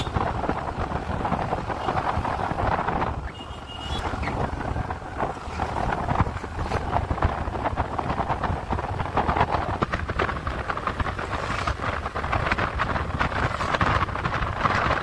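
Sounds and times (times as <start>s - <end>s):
road and engine noise: 0.0s - 15.0s
wind buffeting microphone: 0.0s - 15.0s.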